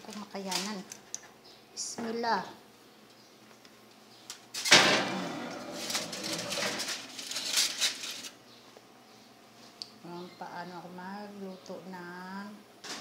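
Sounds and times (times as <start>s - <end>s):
aluminium foil crinkling: 0.0s - 1.2s, 4.3s - 8.4s.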